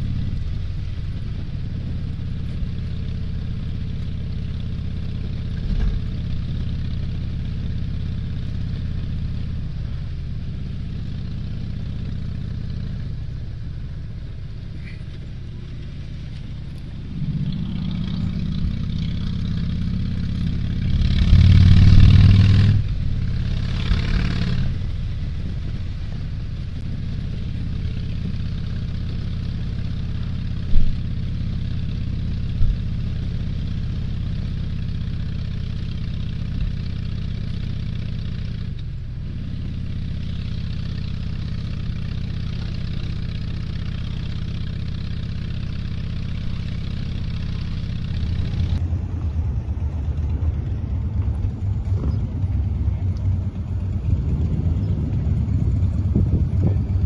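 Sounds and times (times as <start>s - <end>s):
vehicle engine humming: 0.0s - 57.0s
engine revving: 14.8s - 30.3s, 40.4s - 48.8s.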